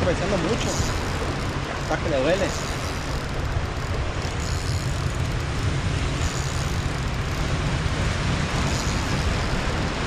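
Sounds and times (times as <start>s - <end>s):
wind on microphone: 0.0s - 10.0s.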